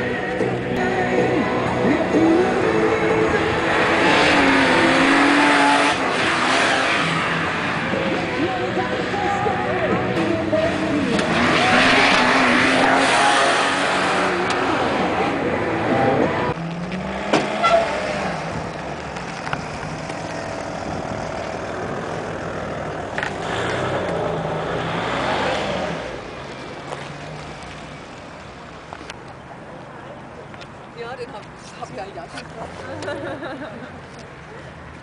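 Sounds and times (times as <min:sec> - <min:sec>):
car engine revving: 0:01.4 - 0:28.1.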